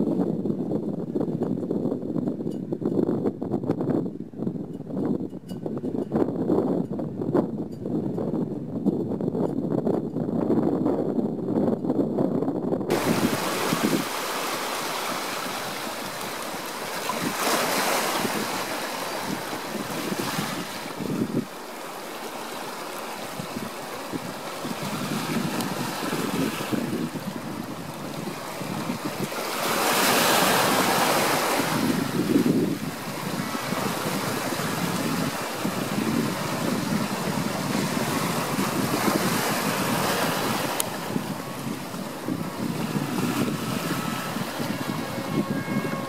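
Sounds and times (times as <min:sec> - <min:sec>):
wind noise on microphone: 0:00.0 - 0:46.0
harbor water washing: 0:12.9 - 0:46.0.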